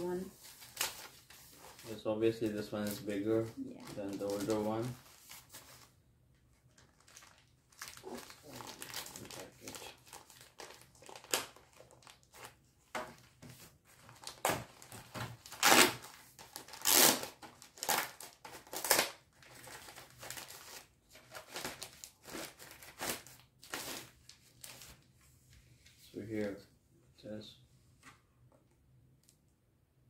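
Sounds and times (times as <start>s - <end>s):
plastic wrapping crinkling: 0.4s - 6.0s, 6.6s - 12.6s, 13.9s - 25.0s.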